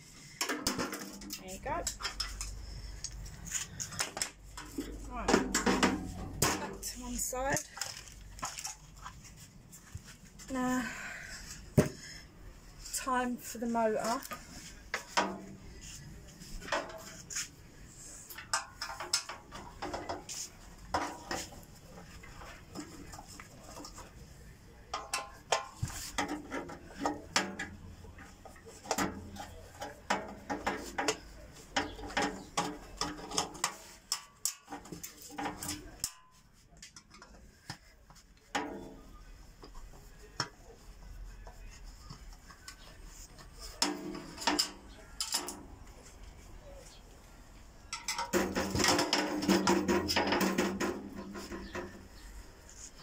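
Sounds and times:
screwdriver clattering on metal panel: 47.9s - 50.6s.

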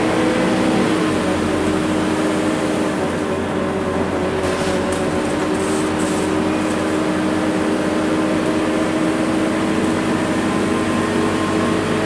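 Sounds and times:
bus engine running: 0.0s - 12.0s
road noise: 0.0s - 12.0s.

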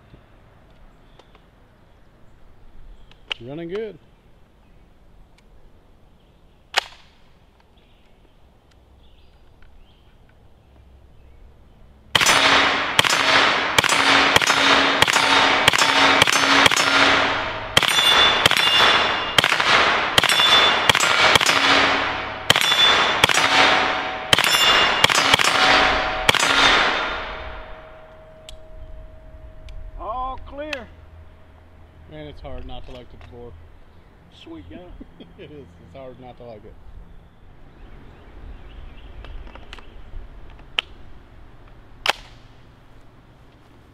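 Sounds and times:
rifle gunshots with echo: 12.1s - 28.5s.

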